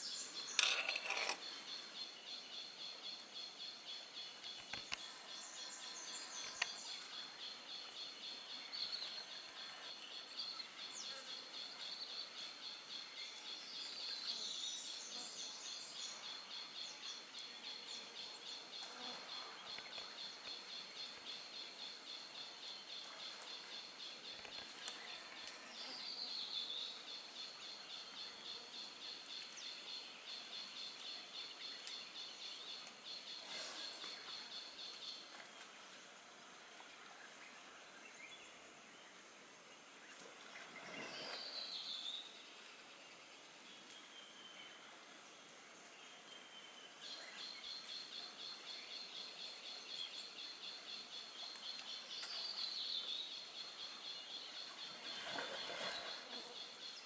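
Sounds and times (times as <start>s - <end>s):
pulsing insect drone: 2.8s - 10.0s.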